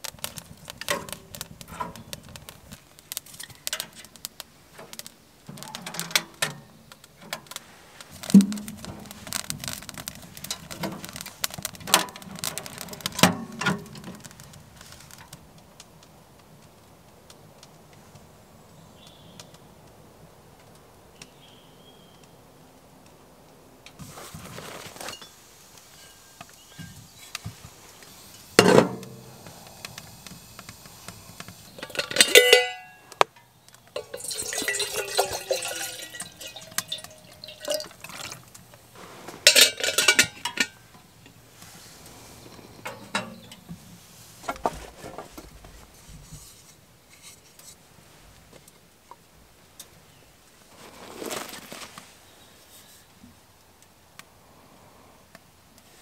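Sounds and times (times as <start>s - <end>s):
metal cookware clanking: 31.8s - 33.0s, 34.0s - 38.5s, 39.4s - 40.9s, 42.9s - 43.6s
water pouring into kettle: 34.0s - 38.6s.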